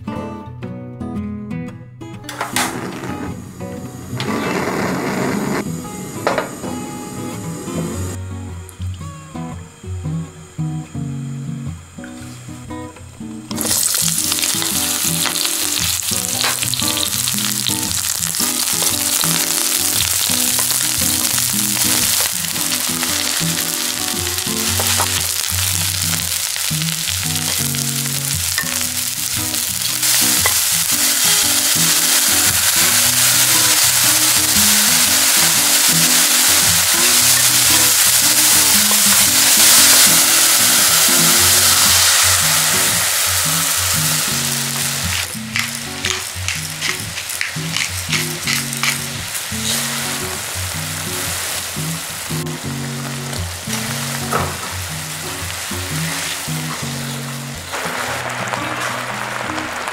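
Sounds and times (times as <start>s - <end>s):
vegetables sizzling in oil: 2.4s - 8.2s, 13.3s - 59.9s
liquid pouring: 13.6s - 51.2s.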